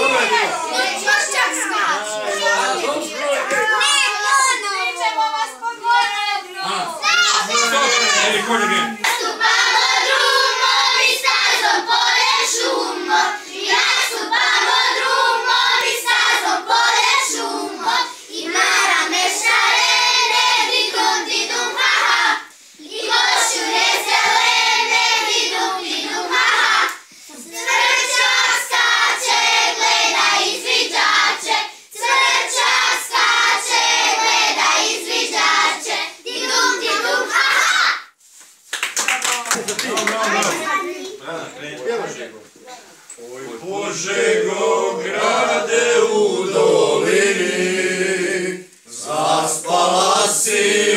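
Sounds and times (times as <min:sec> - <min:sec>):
children singing together: 0:06.6 - 0:38.0, 0:43.6 - 0:50.9
hand clapping: 0:38.6 - 0:40.7.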